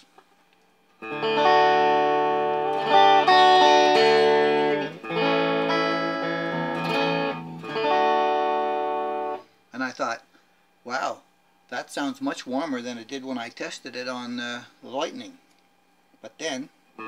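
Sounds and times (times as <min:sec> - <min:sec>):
electric guitar strummed chords: 0:01.0 - 0:09.5.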